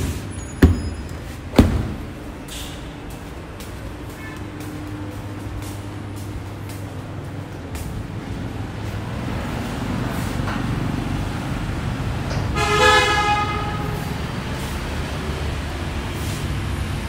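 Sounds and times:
traffic rumble: 0:00.0 - 0:17.0
vehicle horn: 0:04.1 - 0:04.7, 0:12.5 - 0:14.1.

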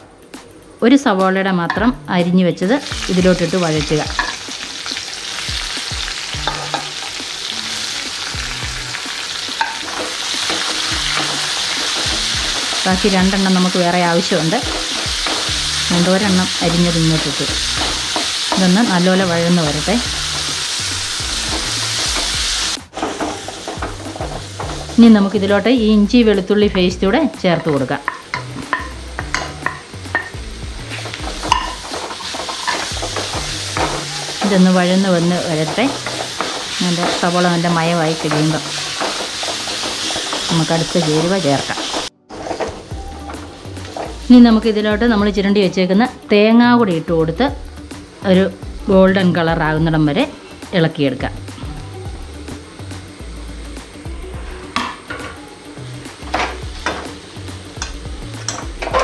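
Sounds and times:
onion sizzling in hot oil: 0:01.0 - 0:59.0
spoon scraping and knocking pan: 0:02.9 - 0:07.2, 0:09.1 - 0:25.4, 0:26.5 - 0:44.5, 0:56.2 - 0:57.2, 0:57.8 - 0:59.0.

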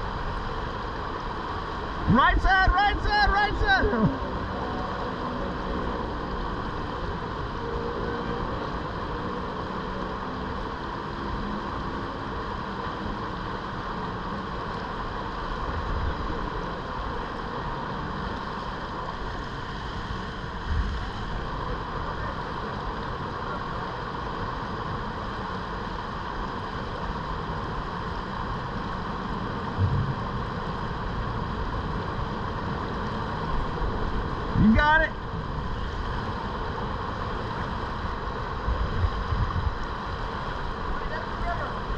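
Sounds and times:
river water rushing: 0:00.0 - 0:41.9
low thumps: 0:29.8 - 0:30.4.

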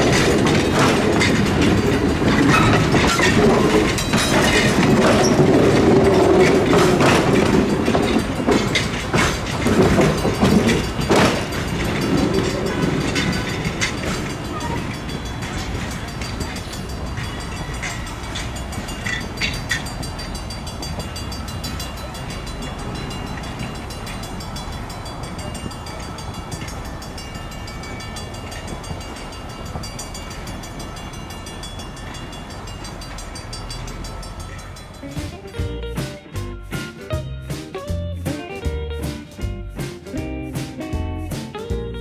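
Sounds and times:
train rolling on track: 0:00.0 - 0:42.0
train wheels clicking: 0:00.0 - 0:42.0.

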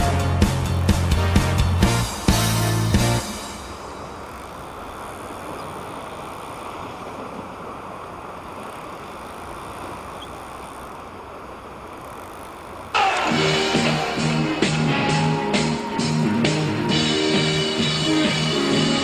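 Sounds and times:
rock music: 0:00.0 - 0:03.6, 0:13.0 - 0:19.0
water at the shoreline: 0:00.0 - 0:19.0
wind: 0:00.0 - 0:19.0.

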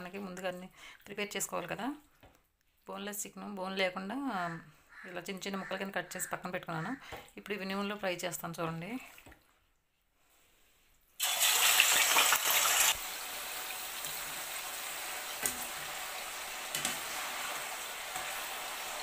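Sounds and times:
chicken sizzling in hot oil: 0:11.2 - 0:19.0.

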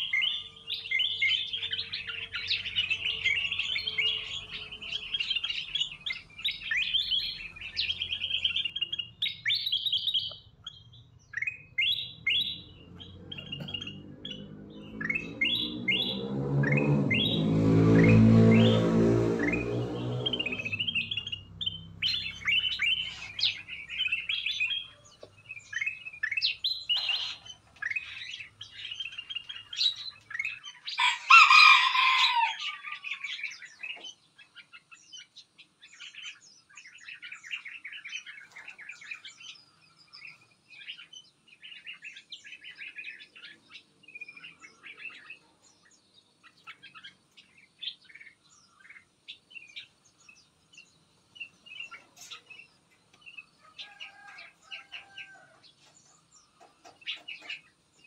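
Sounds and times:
harsh bird call: 0:00.0 - 0:35.3
songbirds chirping: 0:00.0 - 0:58.0.

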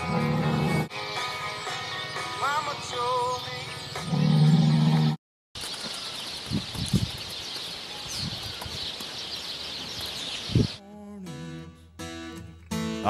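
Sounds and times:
small birds chirping: 0:01.4 - 0:10.8.

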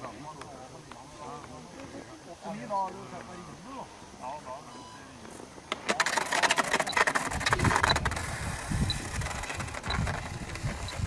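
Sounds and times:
model jet scraping across ice: 0:06.0 - 0:10.8.

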